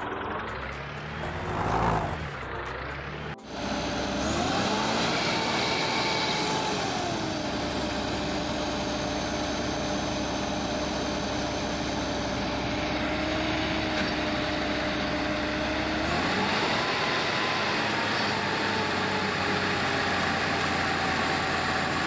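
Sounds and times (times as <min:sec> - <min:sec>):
tractor engine revving: 0:00.0 - 0:22.0.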